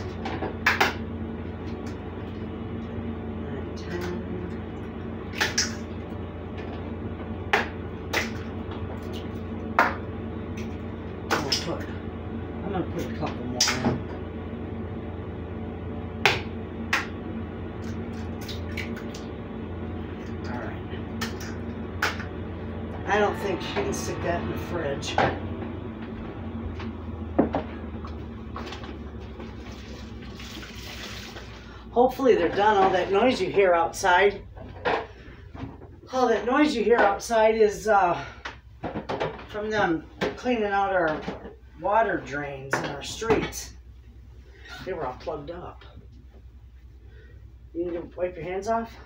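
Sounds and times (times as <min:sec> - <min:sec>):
low rumble of drain cleaning equipment: 0:00.0 - 0:49.0
steady low hum: 0:00.0 - 0:49.0.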